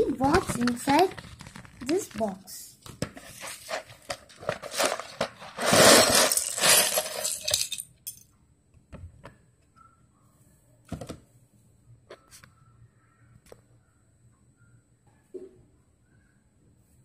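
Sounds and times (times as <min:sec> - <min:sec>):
plastic pieces clattering on tiles: 0:03.0 - 0:08.3.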